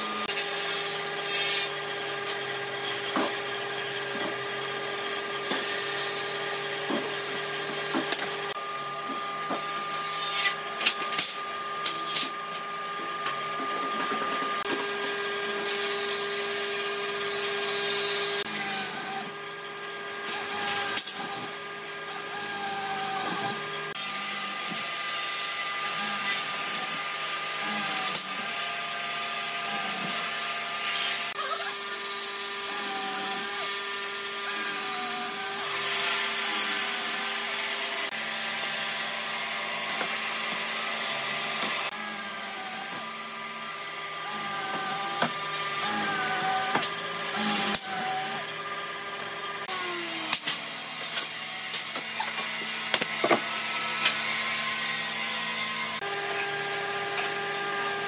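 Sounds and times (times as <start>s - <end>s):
power tool motor whine: 0.0s - 48.5s, 49.6s - 58.0s
motor winding down: 15.6s - 19.5s, 20.2s - 24.6s, 25.8s - 38.2s, 41.7s - 48.5s.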